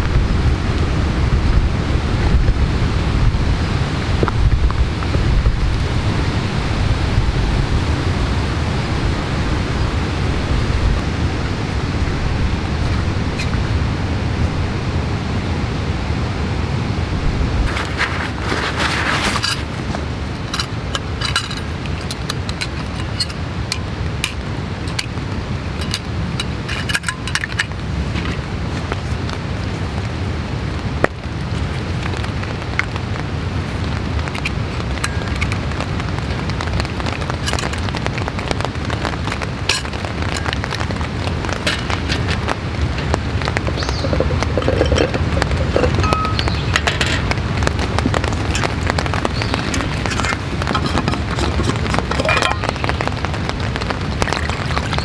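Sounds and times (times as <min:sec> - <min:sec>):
rain on a canvas tarp: 0:00.0 - 0:55.0
camp gear clicking and knocking: 0:17.7 - 0:25.2, 0:25.8 - 0:29.0, 0:34.3 - 0:35.9, 0:37.1 - 0:38.0, 0:38.6 - 0:53.1.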